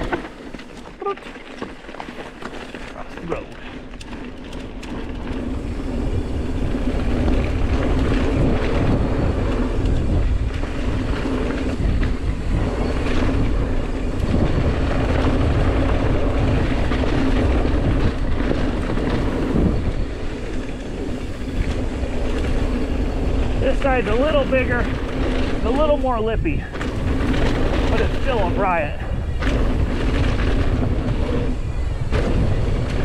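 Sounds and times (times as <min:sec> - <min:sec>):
bike tyres rumbling on dirt: 0:00.0 - 0:33.0
wind rushing over microphone: 0:02.8 - 0:33.0.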